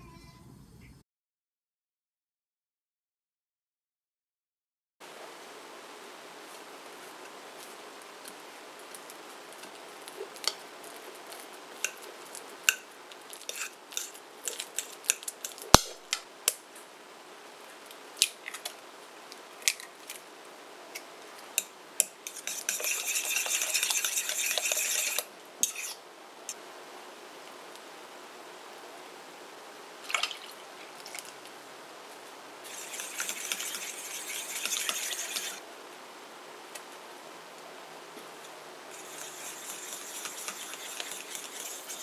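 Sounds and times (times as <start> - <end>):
fork whisking egg in bowl: 10.4 - 15.8, 21.6 - 26.0, 32.6 - 35.6, 38.9 - 42.0
fork tapping and scraping in bowl: 13.5 - 15.6, 21.6 - 26.0, 32.7 - 35.6, 39.0 - 42.0.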